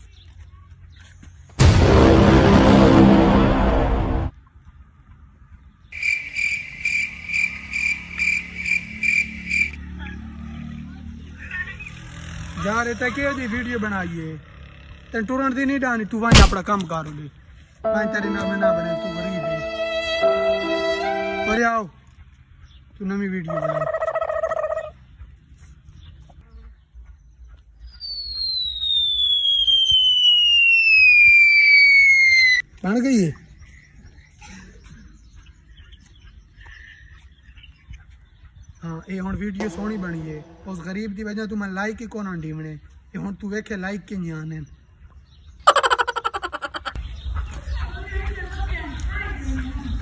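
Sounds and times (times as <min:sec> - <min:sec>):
cricket chirping: 0:05.9 - 0:09.8
descending whistle: 0:27.9 - 0:32.6.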